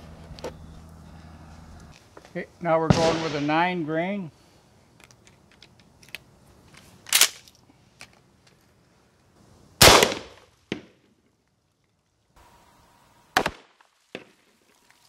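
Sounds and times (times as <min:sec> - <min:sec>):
shotgun shot: 0:02.9 - 0:03.8, 0:09.8 - 0:10.8, 0:13.4 - 0:13.7
small crack: 0:05.0 - 0:08.7.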